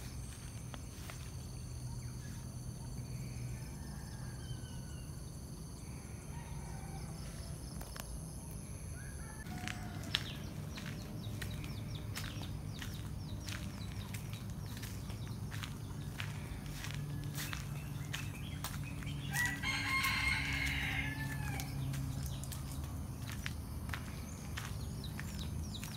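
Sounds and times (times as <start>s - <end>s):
high-pitched insect drone: 0.0s - 6.9s
footsteps on gravel: 9.4s - 25.9s.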